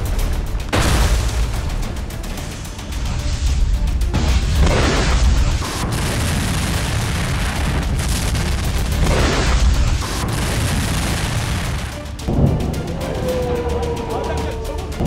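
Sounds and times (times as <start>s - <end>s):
heavy explosion booms: 0.7s - 1.8s, 4.1s - 12.7s
deep explosion rumble: 3.1s - 13.1s.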